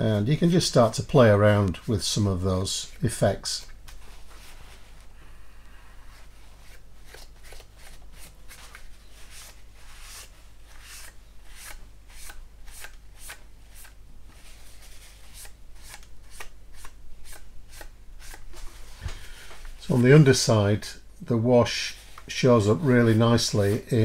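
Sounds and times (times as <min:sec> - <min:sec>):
tissue rubbing on plastic: 0:04.0 - 0:05.1.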